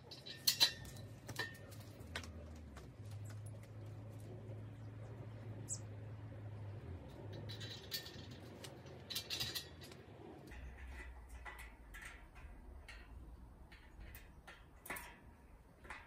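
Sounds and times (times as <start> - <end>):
tools clicking and tapping: 0.0 - 3.5, 7.1 - 16.0
low hum: 0.0 - 14.5.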